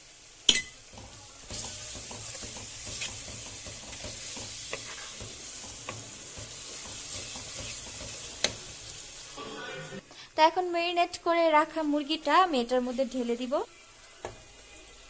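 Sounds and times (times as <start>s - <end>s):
onions sizzling in oil: 0.0s - 9.4s, 10.6s - 15.0s
spatula stirring in pan: 0.8s - 9.4s.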